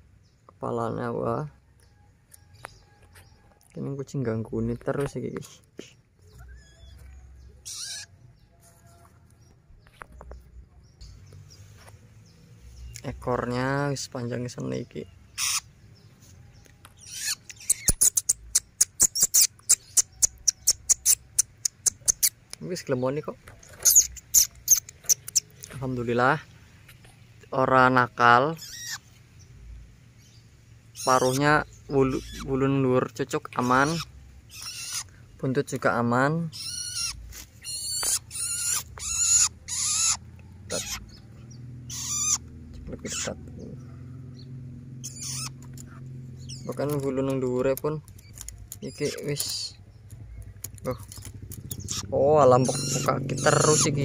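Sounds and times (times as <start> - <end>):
bird giving high-pitched chirps: 5.9 - 8.2, 14.0 - 26.0, 27.6 - 29.1, 30.2 - 54.0.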